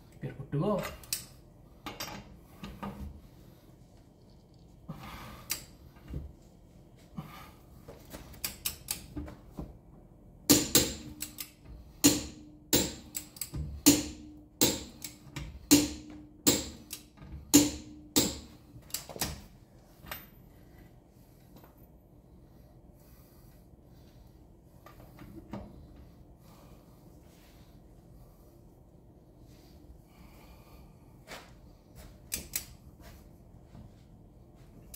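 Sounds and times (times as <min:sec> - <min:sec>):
torque wrench clicking: 0:10.7 - 0:11.6, 0:12.8 - 0:13.6.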